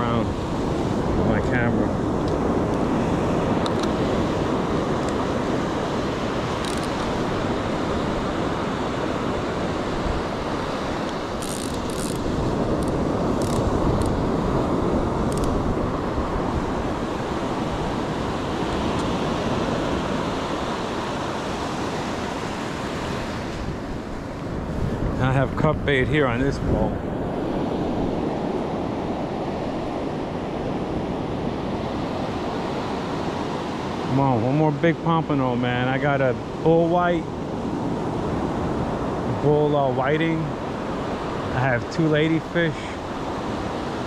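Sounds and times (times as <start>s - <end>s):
wind buffeting microphone: 0.0s - 34.6s
ocean surf washing up: 0.0s - 44.0s.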